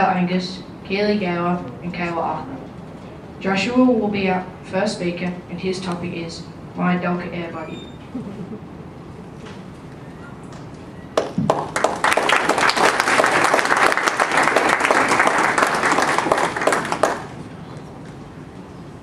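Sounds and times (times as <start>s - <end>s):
audience applauding: 11.2s - 17.4s.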